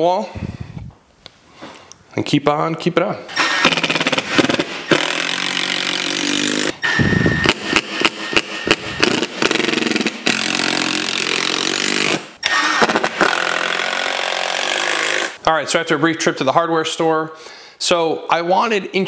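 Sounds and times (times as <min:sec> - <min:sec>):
power drill driving screws: 0:03.3 - 0:15.4.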